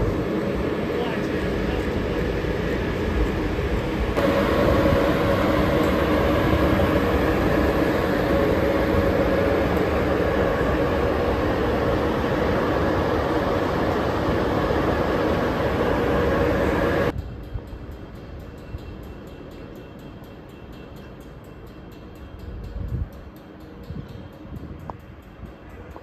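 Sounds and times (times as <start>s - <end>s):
locomotive running: 0.0s - 26.0s.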